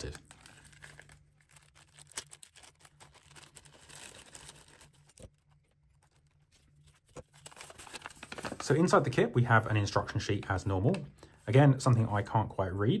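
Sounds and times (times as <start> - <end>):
plastic bag crinkling: 0.0 - 9.0.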